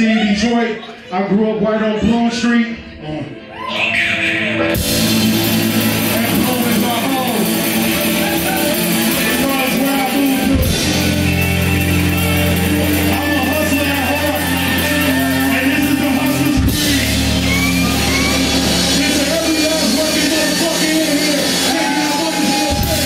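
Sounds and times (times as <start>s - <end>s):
rock band with distorted guitars: 4.2s - 23.0s.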